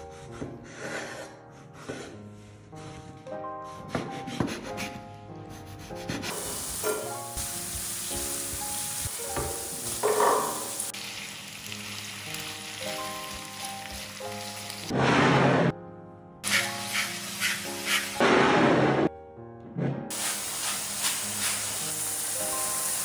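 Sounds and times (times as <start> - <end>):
background music: 0.0 - 23.0
chicken sizzling in a frying pan: 6.4 - 14.9, 20.1 - 23.0.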